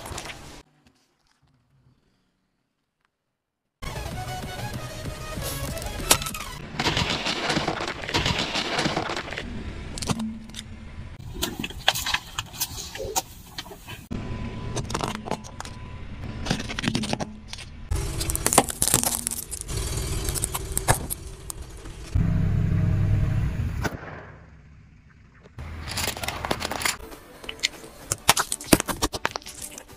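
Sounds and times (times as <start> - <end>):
car low rumble: 9.0 - 28.1
plastic objects cracking under tyre: 16.4 - 22.2, 25.8 - 29.9.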